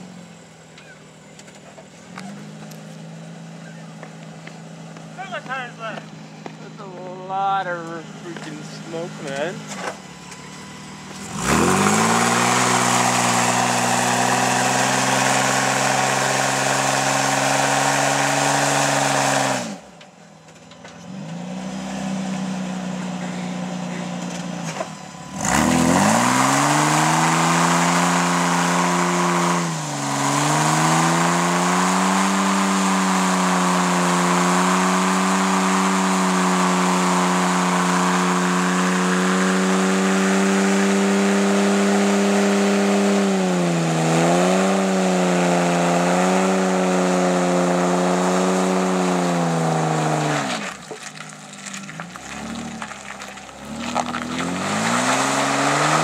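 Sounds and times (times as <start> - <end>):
engine revving high: 10.5 - 19.9, 21.0 - 56.0
tyre spinning on pavement: 50.3 - 56.0.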